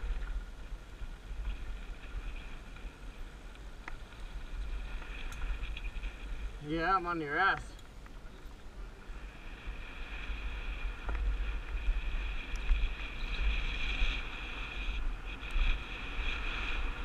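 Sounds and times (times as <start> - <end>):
bike tyre hiss and buzz: 8.9 - 17.0.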